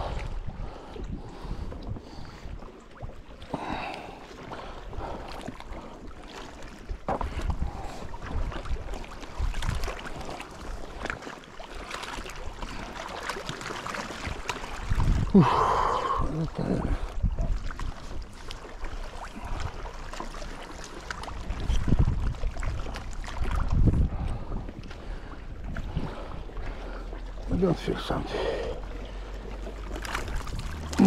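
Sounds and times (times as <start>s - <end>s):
wind buffeting microphone: 0.0s - 3.2s, 7.0s - 10.3s, 14.3s - 18.4s, 21.3s - 26.8s, 30.0s - 31.0s.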